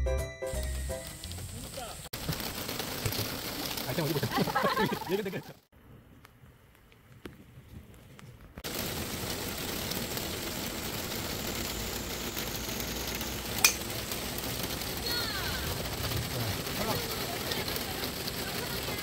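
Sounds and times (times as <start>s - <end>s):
rain hissing: 0.5s - 5.5s, 8.6s - 19.0s
sharp crack: 8.6s - 18.9s.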